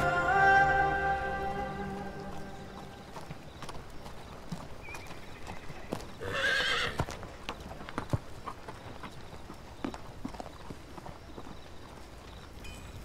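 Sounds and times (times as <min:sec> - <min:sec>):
background music: 0:00.0 - 0:03.2
horse hooves clopping: 0:00.0 - 0:13.0
horse whinnying: 0:06.2 - 0:07.0.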